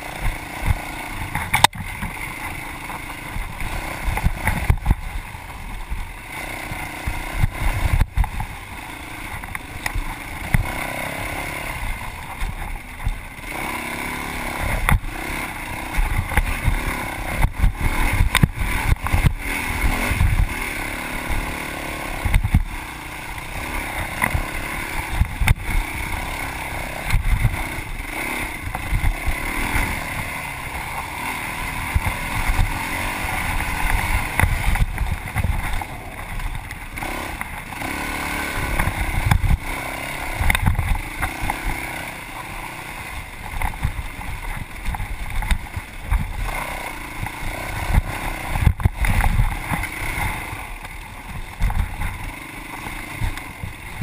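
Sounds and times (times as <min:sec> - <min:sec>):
dirt bike engine revving: 0:00.0 - 0:54.0
low thumps and sharp knocks: 0:00.2 - 0:05.2, 0:07.1 - 0:08.6, 0:09.3 - 0:10.8, 0:14.6 - 0:15.2, 0:15.9 - 0:20.6, 0:22.2 - 0:22.8, 0:23.9 - 0:25.8, 0:27.0 - 0:31.1, 0:31.7 - 0:37.6, 0:38.6 - 0:41.9, 0:43.4 - 0:54.0.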